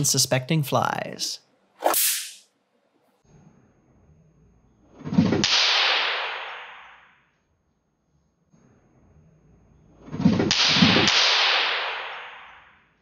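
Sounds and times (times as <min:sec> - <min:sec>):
hiss: 0:01.8 - 0:02.4
swatter swishing through air: 0:01.8 - 0:02.4
electric swatter crack: 0:01.8 - 0:02.5, 0:05.0 - 0:07.2, 0:10.0 - 0:12.9.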